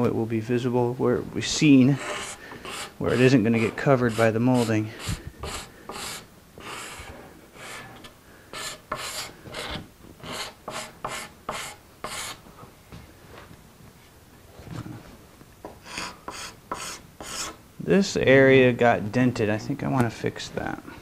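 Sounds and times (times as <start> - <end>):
card scraper scraping wood: 2.0 - 12.4.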